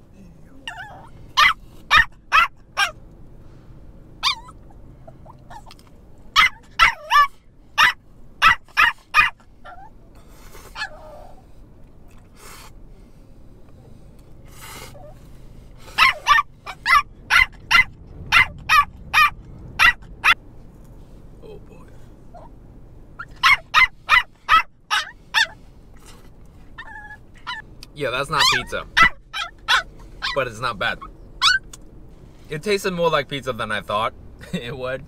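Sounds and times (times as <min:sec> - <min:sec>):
puppy yapping: 0:00.7 - 0:03.0, 0:04.2 - 0:05.8, 0:06.4 - 0:10.0, 0:10.8 - 0:11.4, 0:16.0 - 0:20.4, 0:23.2 - 0:25.6, 0:26.8 - 0:27.6, 0:28.4 - 0:30.4, 0:31.0 - 0:31.8.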